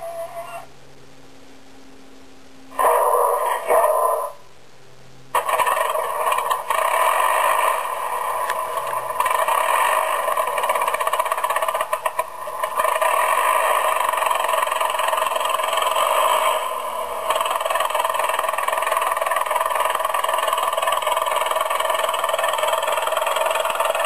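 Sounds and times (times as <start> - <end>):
piston aircraft engine running: 5.4 - 24.0.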